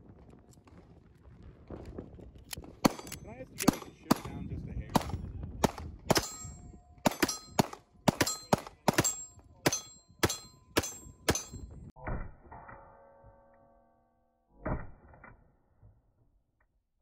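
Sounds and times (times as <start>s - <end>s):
pistol shots: 2.8s - 11.6s
steel targets clanging: 6.1s - 7.6s, 8.2s - 13.8s.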